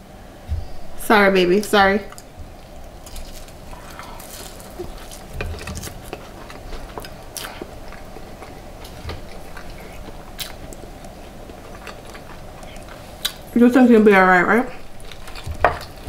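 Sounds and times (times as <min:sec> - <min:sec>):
sharp crackles: 0:02.1 - 0:08.2
person chewing food: 0:02.1 - 0:13.5, 0:14.8 - 0:16.0.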